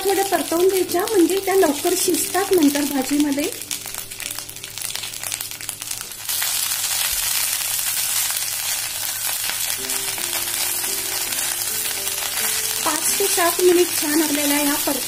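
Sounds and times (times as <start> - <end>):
beans sizzling in hot oil: 0.0 - 15.0.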